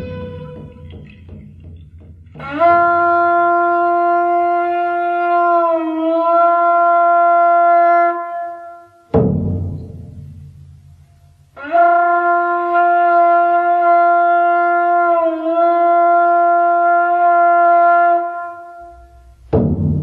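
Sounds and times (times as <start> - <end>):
long horn-like wind note: 0.0 - 1.2, 2.4 - 9.0, 11.6 - 19.4
deep drum stroke: 9.1 - 11.0.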